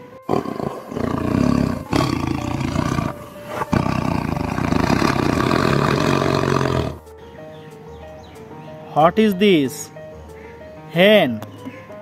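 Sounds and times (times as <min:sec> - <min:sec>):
tiger roaring: 0:00.0 - 0:07.0.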